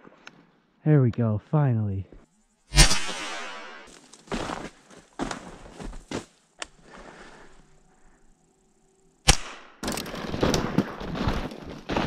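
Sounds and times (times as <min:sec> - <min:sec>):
gunshot with ringing tail: 0:02.7 - 0:03.9.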